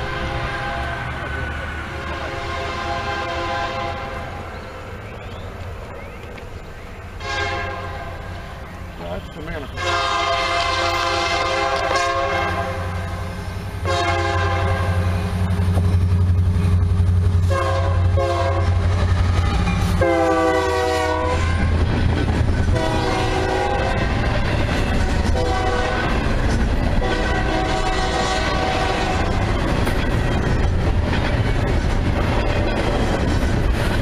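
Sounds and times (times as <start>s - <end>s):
locomotive horn blasts: 0.0s - 1.2s, 2.0s - 4.4s, 7.2s - 8.4s, 9.7s - 15.2s, 17.4s - 18.9s, 20.0s - 21.7s, 22.7s - 24.2s, 25.2s - 26.3s, 27.0s - 29.5s
rolling clatter of rail cars: 0.0s - 34.0s
diesel engine drone: 11.0s - 33.8s.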